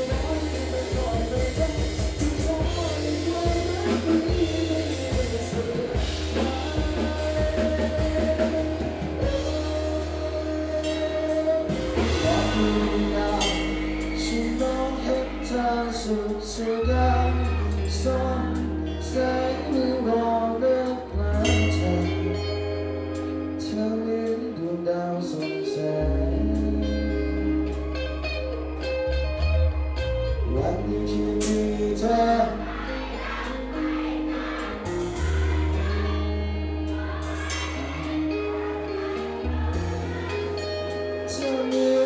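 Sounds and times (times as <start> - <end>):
drum kit: 0.0 - 20.0, 28.8 - 42.0
bass guitar: 0.0 - 42.0
electric guitar: 0.0 - 42.0
man singing: 0.0 - 42.0.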